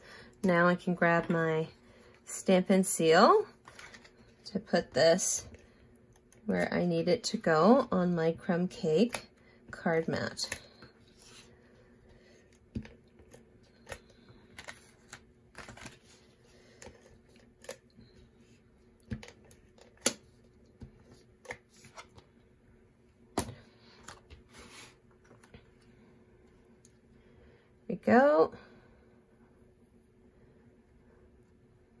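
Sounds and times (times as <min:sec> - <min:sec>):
paper rustling: 0:14.2 - 0:17.3.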